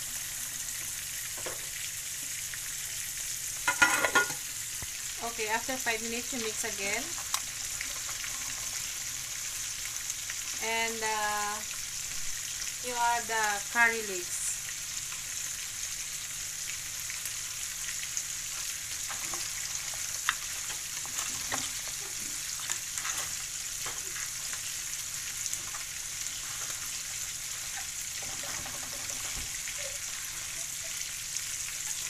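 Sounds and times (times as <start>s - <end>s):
food sizzling in a pan: 0.0s - 32.0s.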